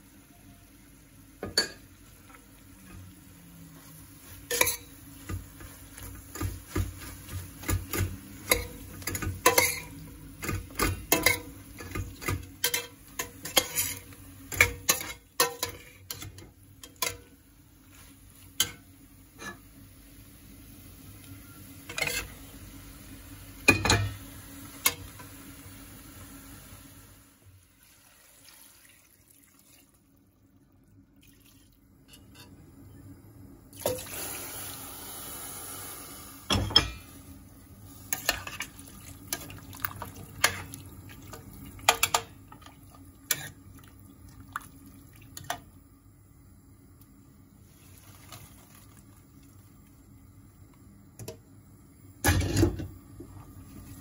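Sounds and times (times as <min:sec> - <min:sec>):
metal ladle clinking on pot: 0:08.5 - 0:09.9
water pouring into pot: 0:27.6 - 0:30.1, 0:31.2 - 0:31.8, 0:33.7 - 0:36.2, 0:38.4 - 0:41.9, 0:47.6 - 0:49.8.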